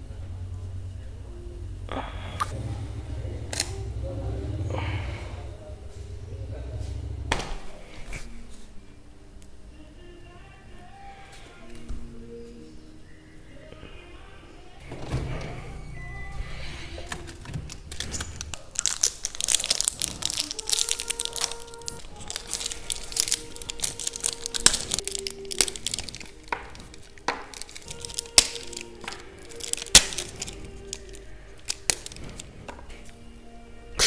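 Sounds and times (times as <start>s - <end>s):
background music: 0.0s - 34.0s
plastic wrapper crinkling and tearing: 17.0s - 32.7s
chocolate snapping: 17.0s - 33.1s.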